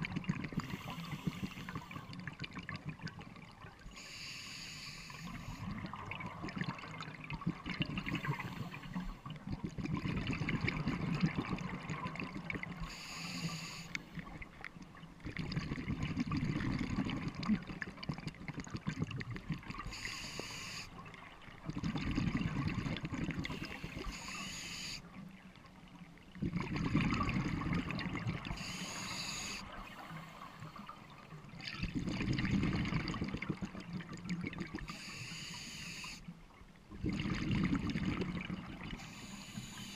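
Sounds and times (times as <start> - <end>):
bubbling exhale: 0.0 - 2.1, 26.4 - 31.0
regulator hissing inhale: 0.6 - 2.1, 3.9 - 5.7, 12.8 - 14.2, 19.9 - 21.0, 23.5 - 25.2, 28.5 - 30.9, 34.9 - 36.3, 39.0 - 39.9.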